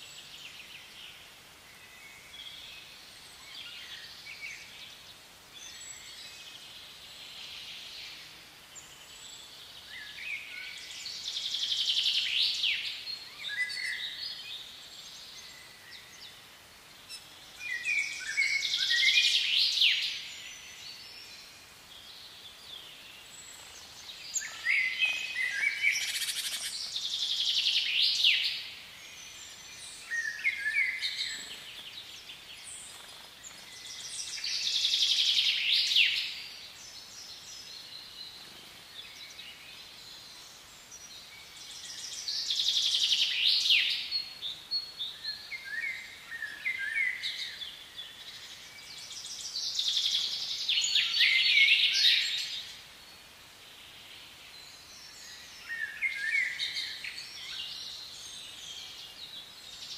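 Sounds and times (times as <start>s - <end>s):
faint background noise: 0.0s - 59.9s
songbird singing: 0.0s - 59.9s
bird chirps: 17.0s - 36.5s.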